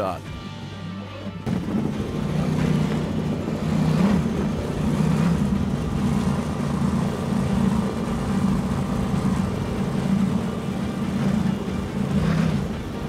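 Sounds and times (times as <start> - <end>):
powerboat engines droning: 0.0 - 13.0.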